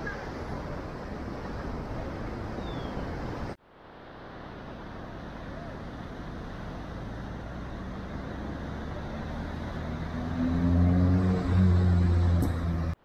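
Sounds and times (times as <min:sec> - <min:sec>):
surf washing: 0:00.0 - 0:13.0
vehicle engine humming: 0:06.7 - 0:13.0.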